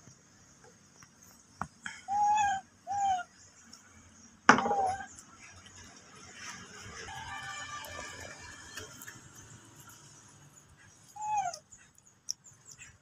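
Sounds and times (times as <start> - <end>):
baby monkey coo calls: 2.0 - 3.5, 4.7 - 5.1, 11.2 - 11.8.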